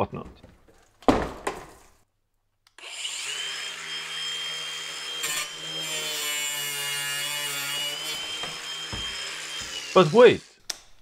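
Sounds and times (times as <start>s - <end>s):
cordless drill whining: 2.8s - 6.0s, 7.7s - 10.6s.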